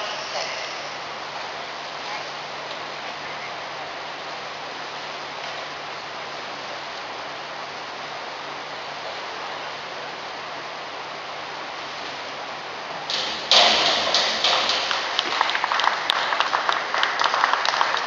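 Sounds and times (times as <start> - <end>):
indoor pool hall hiss: 0.0 - 18.0
applause: 14.1 - 18.0.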